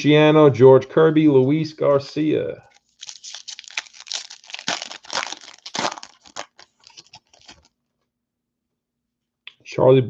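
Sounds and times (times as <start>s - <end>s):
foil wrapper crinkling and tearing: 2.7s - 7.7s.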